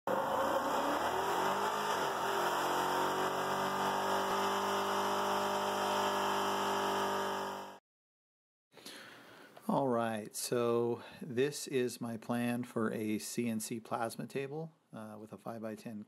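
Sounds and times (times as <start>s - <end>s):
truck engine revving: 0.1s - 7.8s.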